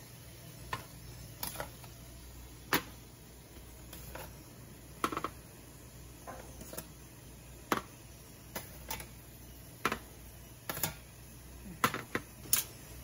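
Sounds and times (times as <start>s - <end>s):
low steady hum: 0.0s - 13.0s
kitchen tongs clicking: 12.4s - 12.8s.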